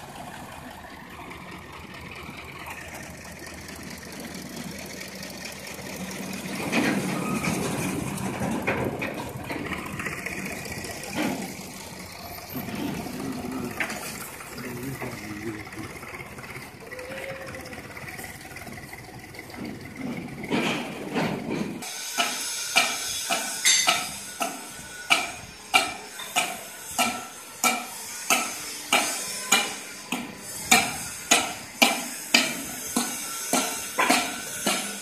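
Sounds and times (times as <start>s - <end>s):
low workshop background: 0.4s - 35.0s
metal-on-metal strikes: 22.2s - 35.0s.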